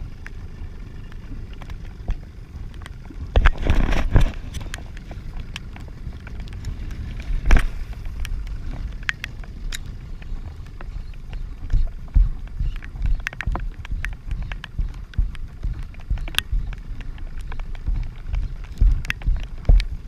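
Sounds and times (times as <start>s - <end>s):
wind buffeting microphone: 0.0s - 20.0s
rain ticking: 7.9s - 20.0s.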